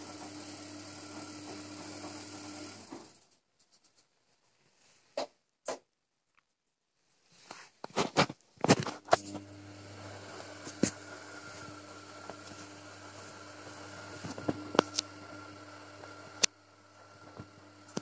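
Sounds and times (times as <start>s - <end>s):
washing machine motor hum: 0.0s - 3.2s, 9.2s - 18.0s.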